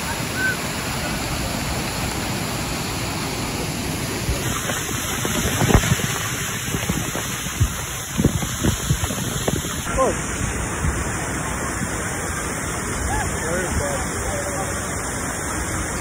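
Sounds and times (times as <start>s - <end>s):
waterfall rushing: 0.0s - 16.0s
water splashing on phone: 4.1s - 9.9s.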